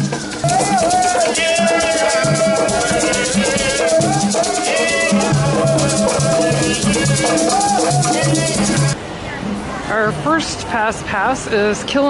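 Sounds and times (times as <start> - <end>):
live band playing upbeat music: 0.0 - 9.0
shaker rhythm: 0.0 - 9.0.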